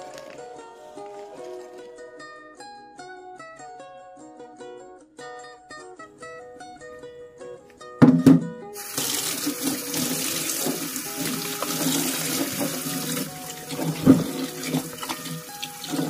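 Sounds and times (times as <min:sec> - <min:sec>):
sharp knocks: 0:08.0 - 0:08.5
hand splashing water: 0:08.8 - 0:16.0
tap water running into basin: 0:08.8 - 0:16.0.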